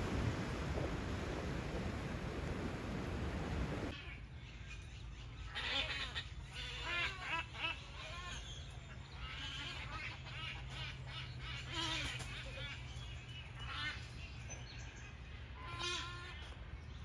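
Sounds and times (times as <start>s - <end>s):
flock of birds calling: 3.9s - 17.0s.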